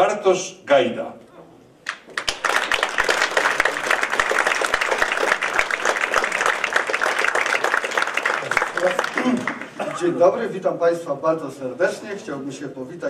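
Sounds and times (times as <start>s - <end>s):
audience applauding: 1.9s - 9.8s.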